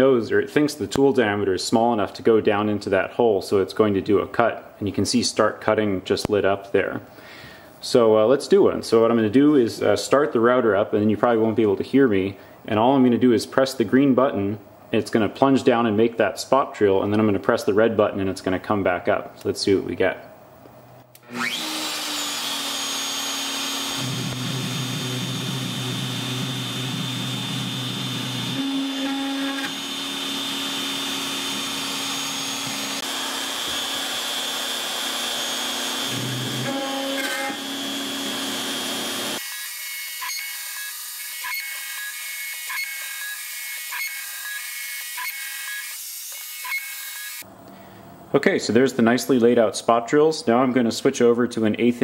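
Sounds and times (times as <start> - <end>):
lower cutting hum: 21.1 - 39.4
router motor whining: 21.2 - 47.4.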